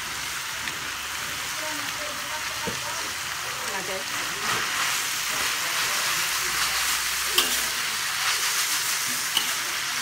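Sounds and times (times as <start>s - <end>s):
food sizzling in a wok: 0.0s - 10.0s
metal spatula stirring: 4.4s - 9.9s
spatula clinking against wok: 7.4s - 7.7s.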